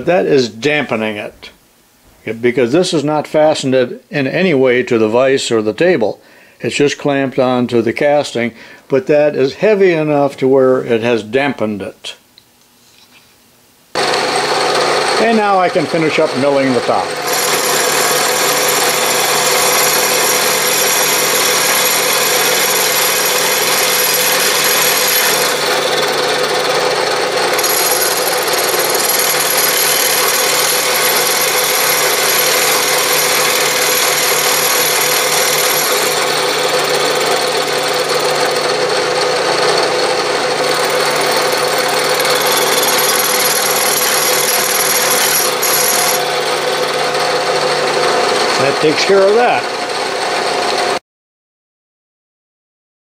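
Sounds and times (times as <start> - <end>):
milling machine cutting metal: 14.0 - 51.0.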